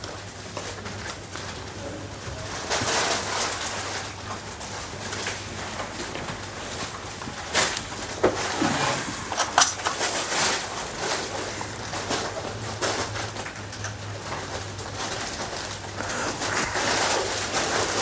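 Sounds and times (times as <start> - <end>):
cloth mats rustling: 6.2 - 11.9.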